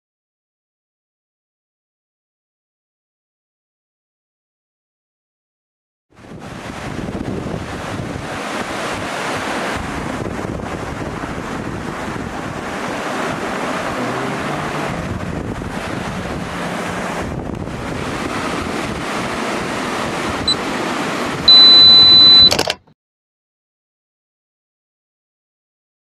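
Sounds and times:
stream rushing over boulders: 6.2s - 21.5s
high electronic beep: 21.5s - 22.6s.

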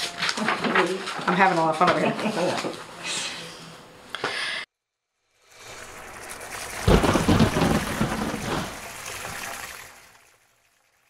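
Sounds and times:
rain hissing: 5.4s - 10.3s
thunderclap rumbling: 5.7s - 9.4s.

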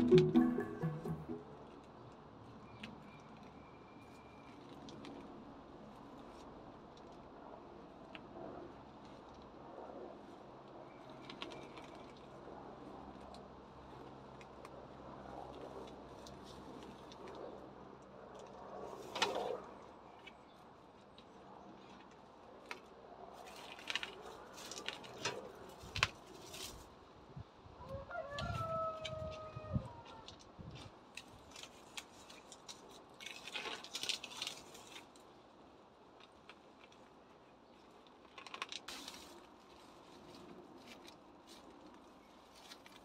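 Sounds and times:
weeds rustling as pulled: 21.8s - 27.0s, 30.2s - 35.6s, 36.2s - 43.0s.

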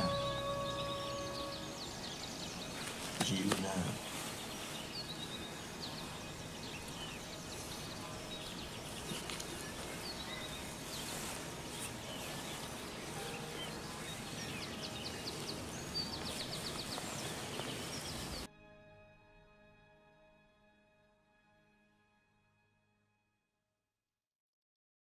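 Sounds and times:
bird trill: 0.0s - 18.5s
birds chirping: 0.0s - 18.5s.

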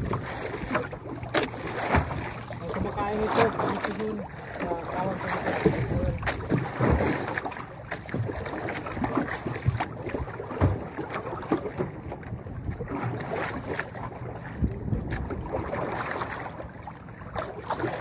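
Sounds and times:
sea water lapping against boat hull: 0.0s - 18.0s
wind on microphone: 5.2s - 7.1s, 12.0s - 16.3s.

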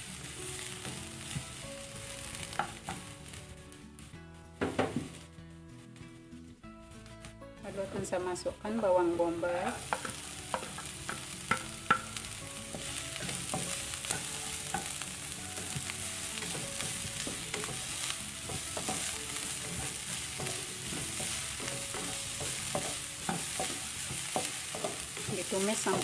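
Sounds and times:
onion and garlic sizzling in oil: 0.0s - 26.0s
spatula stirring and scraping: 6.8s - 26.0s.

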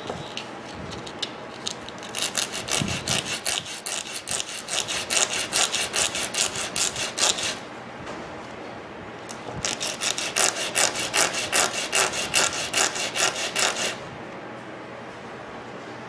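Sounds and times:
motor brush rubbing on sandpaper: 2.2s - 7.6s, 9.6s - 14.0s.

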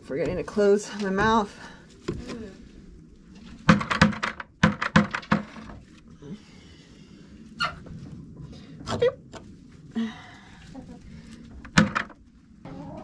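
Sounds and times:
chickens clucking: 10.7s - 11.8s, 12.6s - 13.0s.

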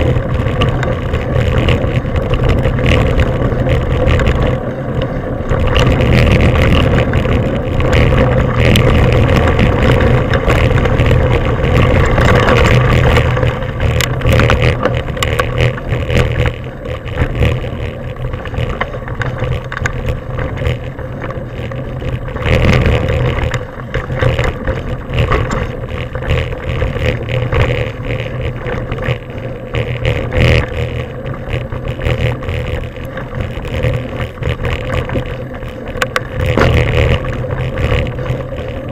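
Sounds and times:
bike rattling over bumps: 0.0s - 38.9s
wind rumble on microphone: 0.0s - 38.9s.

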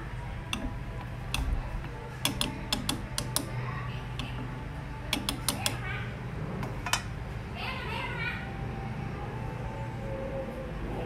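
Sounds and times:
low hum: 0.0s - 11.0s
chopsticks knocking on metal pot: 2.2s - 3.5s, 5.1s - 5.8s.

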